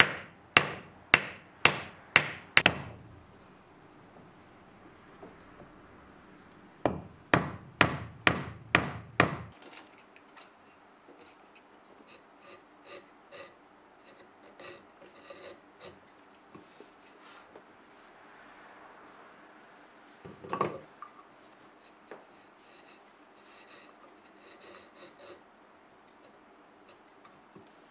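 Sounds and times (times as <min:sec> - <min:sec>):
chisel paring wood: 0:00.0 - 0:03.0, 0:06.8 - 0:09.5
hammer striking a chisel: 0:00.0 - 0:03.0, 0:06.8 - 0:09.5.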